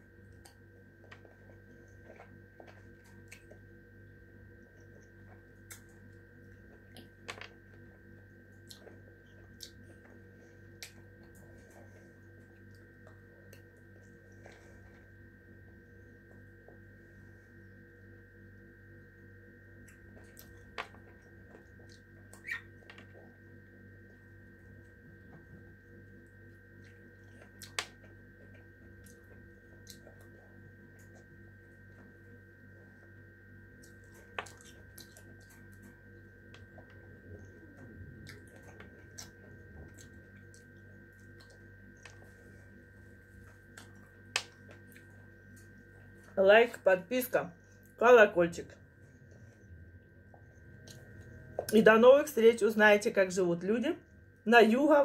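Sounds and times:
steady hum: 0.0 - 55.0
chewing smacks and clicks: 2.2 - 3.6, 5.0 - 6.1, 10.8 - 11.5, 27.2 - 30.4, 33.8 - 42.2, 43.7 - 45.7.

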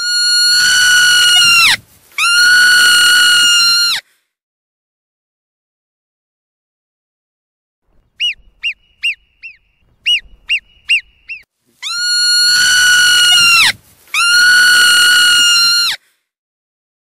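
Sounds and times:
marmot chirps: 8.0 - 14.6
marmot long whistles: 8.2 - 16.0.

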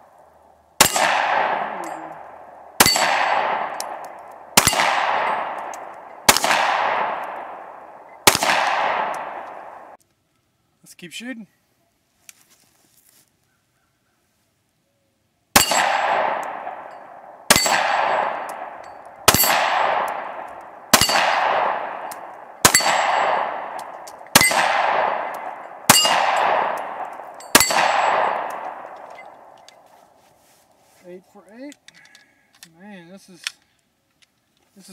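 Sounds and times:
pistol shots: 0.8 - 10.0, 15.6 - 29.6.

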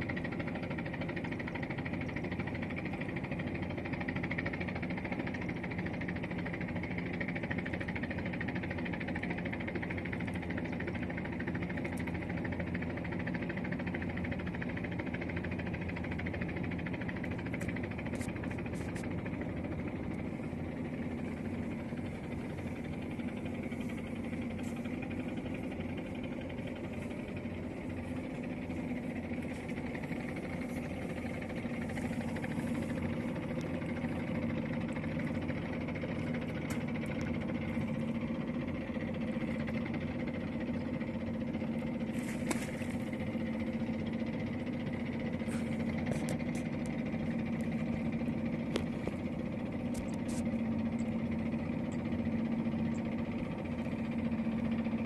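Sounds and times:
engine running steadily: 0.0 - 55.0.

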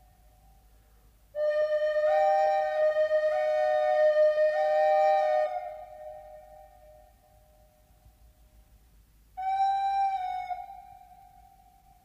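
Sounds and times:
flute music: 1.4 - 7.1, 9.4 - 11.9.

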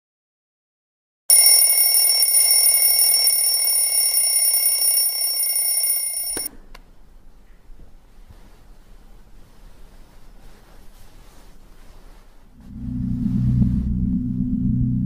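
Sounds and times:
telephone ringing: 1.3 - 6.5.

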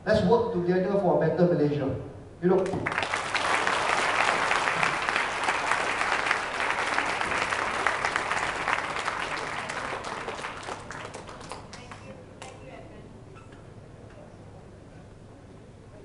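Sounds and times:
audience applauding: 2.6 - 12.1.

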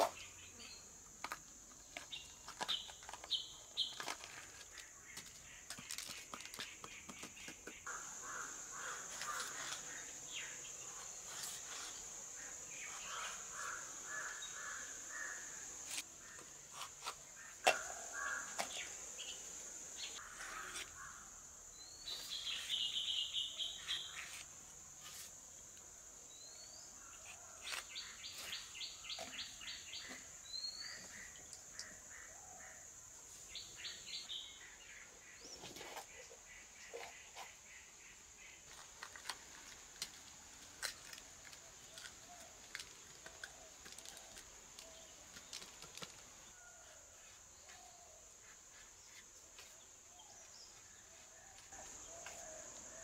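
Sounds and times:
caws: 7.9 - 9.9, 13.1 - 15.5, 17.7 - 18.8, 20.2 - 21.3.

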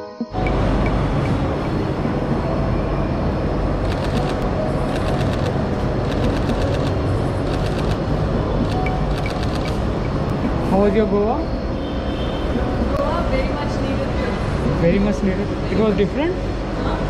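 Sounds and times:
loud rumble and hiss: 0.4 - 17.0
quick clicks: 3.8 - 8.0, 8.6 - 9.8.

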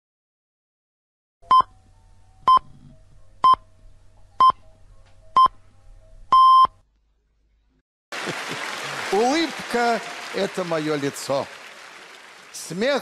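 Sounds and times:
time signal beeps: 6.3 - 6.8.

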